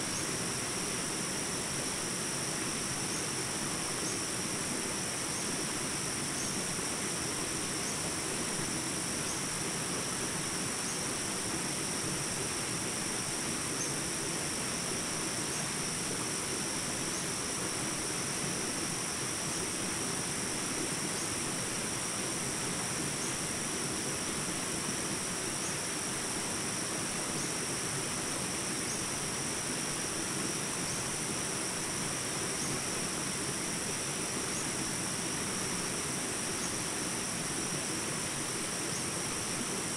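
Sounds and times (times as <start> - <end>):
background hiss: 0.0 - 39.9
high-pitched insect chorus: 0.0 - 39.9.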